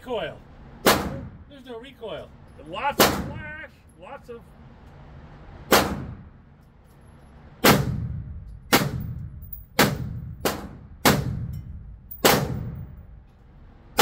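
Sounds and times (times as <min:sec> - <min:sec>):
rifle shots in enclosed range: 0:00.8 - 0:01.4, 0:02.9 - 0:03.4, 0:05.6 - 0:06.5, 0:07.3 - 0:14.0.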